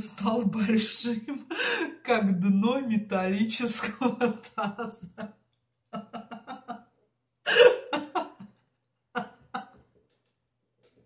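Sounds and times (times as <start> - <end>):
woman laughing: 1.2 - 2.0, 3.8 - 5.3, 5.9 - 9.8.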